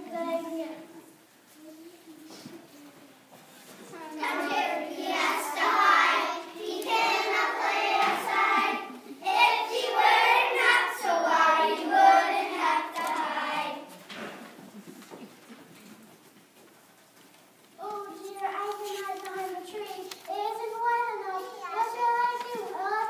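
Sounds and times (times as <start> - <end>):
young children singing: 4.1 - 14.0.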